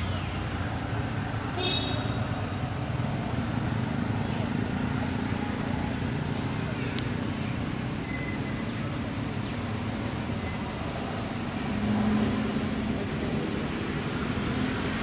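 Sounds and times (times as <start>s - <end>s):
vehicle engine humming: 0.0s - 15.0s.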